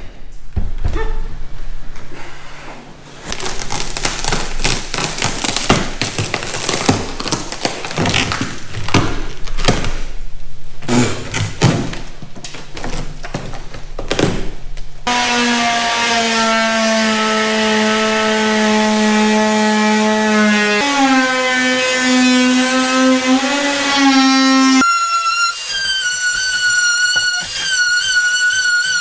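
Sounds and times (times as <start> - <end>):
knocks and thumps: 0.0 - 1.6
power tool cutting fiberglass: 15.1 - 29.0.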